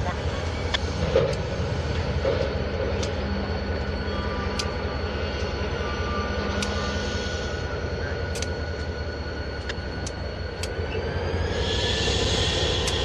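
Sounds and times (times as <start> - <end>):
diesel locomotive rumble: 0.0 - 13.0
faint high whine: 0.0 - 13.0
sharp clicks: 8.3 - 8.6, 9.6 - 10.8.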